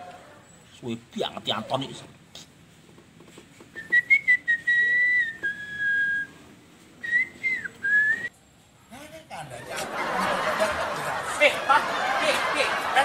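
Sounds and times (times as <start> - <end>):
person whistling a tune: 3.8 - 6.4, 7.0 - 8.3.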